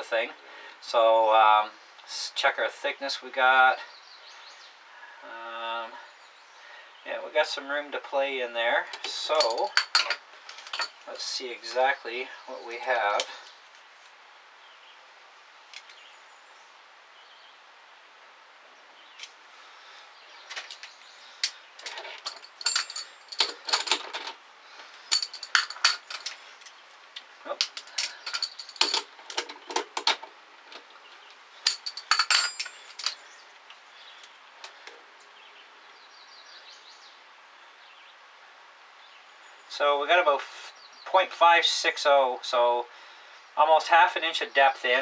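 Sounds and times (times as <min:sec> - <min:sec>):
metallic clicks and clinks: 0:09.0 - 0:11.0, 0:21.4 - 0:24.4, 0:25.1 - 0:26.8, 0:27.5 - 0:30.9, 0:31.6 - 0:33.2.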